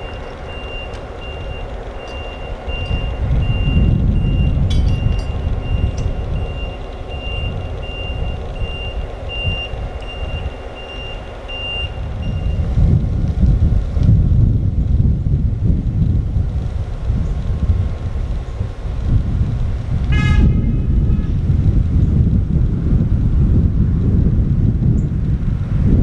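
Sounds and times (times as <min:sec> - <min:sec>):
backup alarm beeping: 0:00.0 - 0:12.7
diesel locomotive idling: 0:00.0 - 0:24.5.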